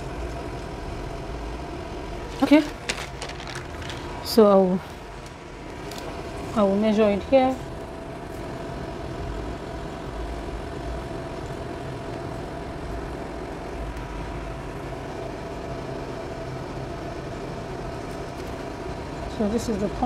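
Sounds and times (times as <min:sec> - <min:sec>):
machine humming: 0:00.0 - 0:20.0.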